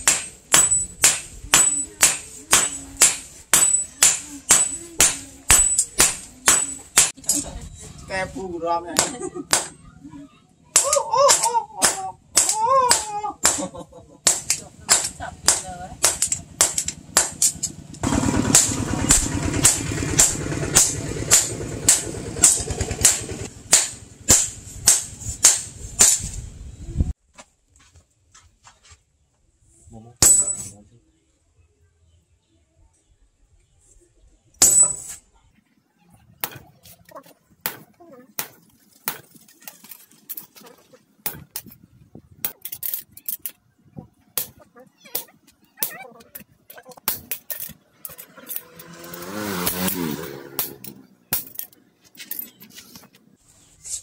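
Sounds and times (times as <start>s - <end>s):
hammer striking metal on anvil: 0.0s - 7.2s, 14.3s - 26.2s, 30.2s - 30.7s.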